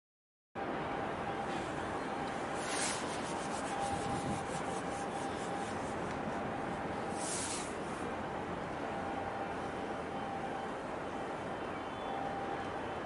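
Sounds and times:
rubbing or rustling: 2.6 - 6.0.

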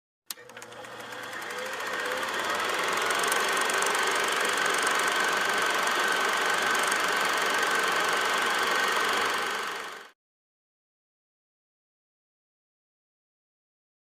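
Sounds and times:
film projector clattering: 0.3 - 10.1.

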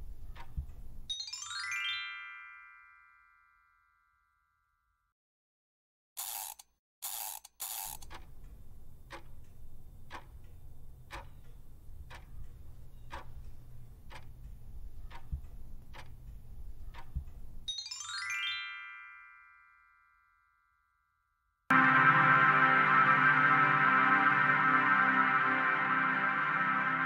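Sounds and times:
clock ticking: 0.1 - 1.1, 7.1 - 17.7
rising chime: 1.1 - 4.2, 17.7 - 20.5, 21.7 - 27.0
low drone: 21.7 - 27.0.

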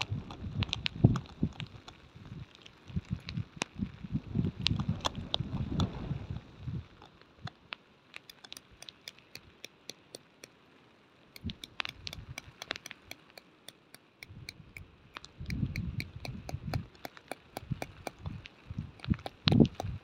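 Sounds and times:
wind buffeting microphone: 0.0 - 7.5, 14.2 - 20.0
hammer tapping tent peg: 8.3 - 10.5, 11.4 - 14.8, 15.5 - 18.3, 19.0 - 20.0.

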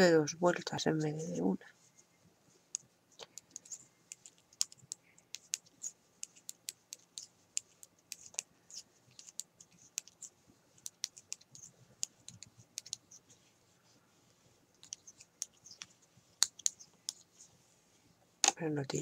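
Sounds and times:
metal knitting needles clicking: 2.7 - 8.5, 9.1 - 13.0, 14.8 - 17.2.

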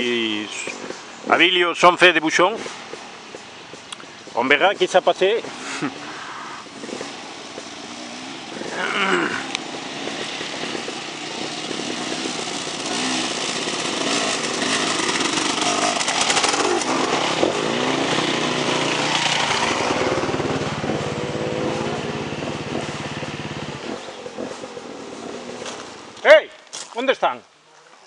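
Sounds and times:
dirt bike engine revving: 4.5 - 26.2.

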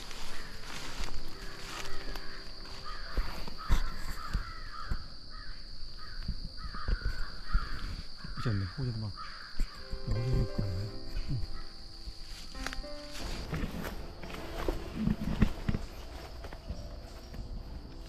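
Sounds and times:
crows cawing: 0.0 - 10.1.

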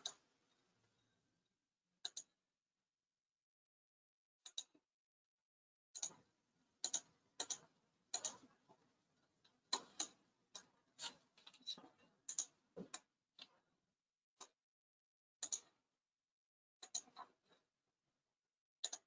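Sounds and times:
computer mouse buttons clicking: 6.8 - 8.4, 15.4 - 15.7, 16.8 - 17.2.

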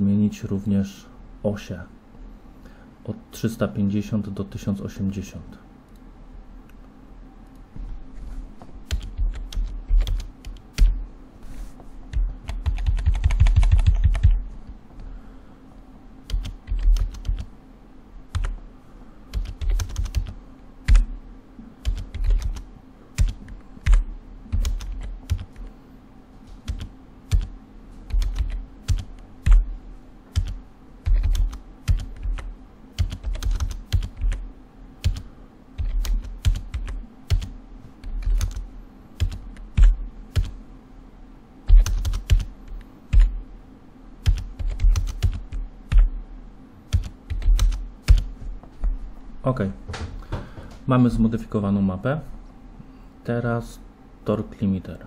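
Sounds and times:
typing on computer keyboard: 8.9 - 10.9, 12.4 - 14.4, 16.3 - 17.5, 18.3 - 18.6, 19.3 - 21.1, 21.8 - 25.7, 26.6 - 27.5, 28.1 - 29.6, 30.4 - 34.4, 35.0 - 35.2, 35.8 - 38.6, 39.2 - 40.5, 41.7 - 43.3, 44.2 - 46.1, 46.9 - 48.3.

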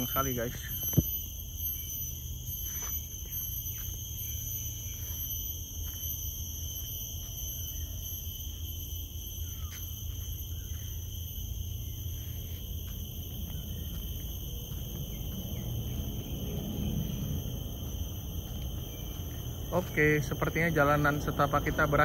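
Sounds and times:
crickets chirping: 0.0 - 22.0
low rumble: 12.2 - 22.0.

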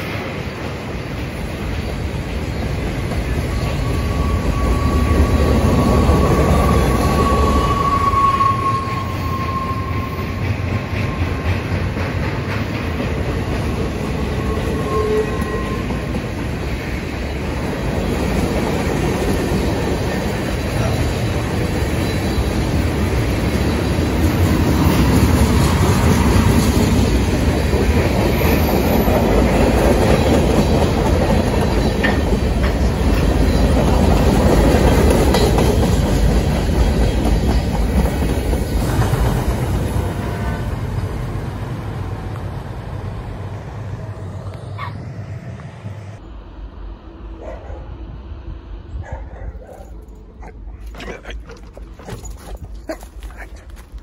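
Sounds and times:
freight cars rumbling on rails: 0.0 - 54.0
high wheel squeal: 3.3 - 11.7, 13.9 - 16.4, 20.8 - 23.8.

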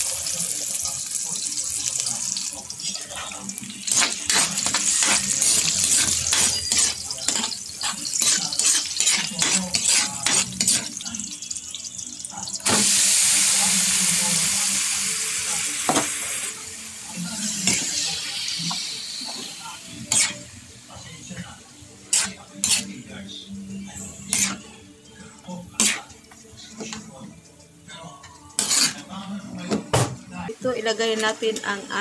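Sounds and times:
meat sizzling loudly in oil: 0.0 - 21.2, 22.0 - 23.0
onion and garlic sizzling in oil: 0.0 - 27.2, 27.9 - 29.6
spatula scraping a wok: 2.9 - 11.1, 17.5 - 20.5, 22.1 - 23.0, 23.9 - 24.7, 25.8 - 26.2, 28.5 - 29.3.

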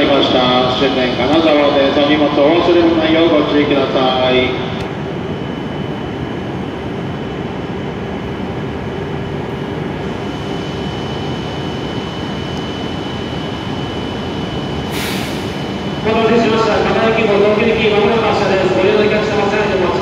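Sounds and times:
high-pitched whine: 0.0 - 20.0
train equipment humming: 0.0 - 20.0
short hiss: 14.9 - 15.6.

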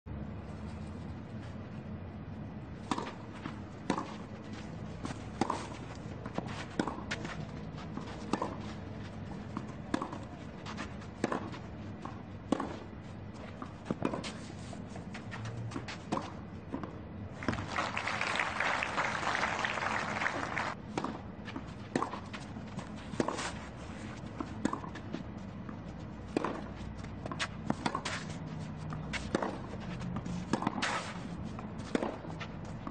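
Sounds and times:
racket hitting tennis ball: 2.8 - 8.8, 9.5 - 17.7, 20.4 - 25.2, 26.2 - 32.9
crowd applauding: 17.4 - 20.8.

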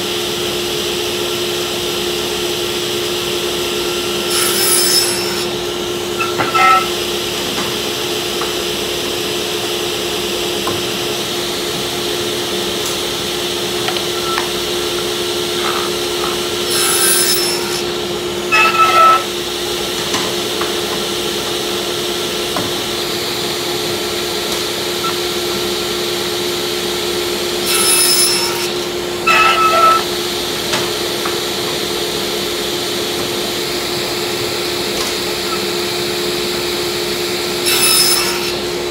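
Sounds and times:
table saw humming: 0.5 - 38.9
saw blade cutting plywood: 3.5 - 7.1, 12.3 - 19.5, 24.8 - 26.1, 27.3 - 30.2, 33.8 - 38.8.

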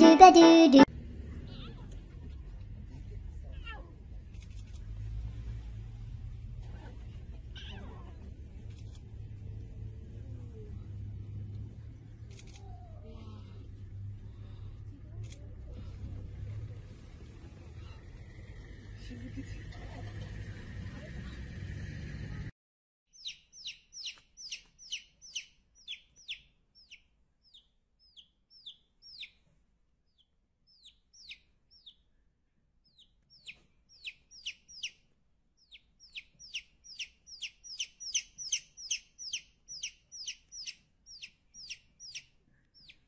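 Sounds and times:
baby chick peeping: 0.0 - 0.9, 23.2 - 29.4, 30.1 - 32.1, 32.8 - 43.0.

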